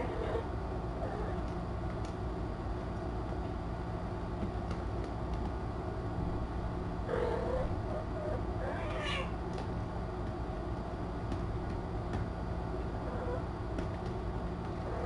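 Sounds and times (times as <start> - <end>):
steady low hum: 0.0 - 15.0
cat meowing: 8.6 - 9.3.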